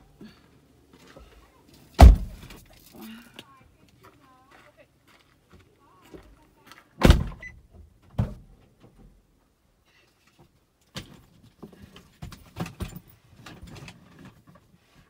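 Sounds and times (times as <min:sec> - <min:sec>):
loud thump in car cabin: 0:02.0 - 0:02.4.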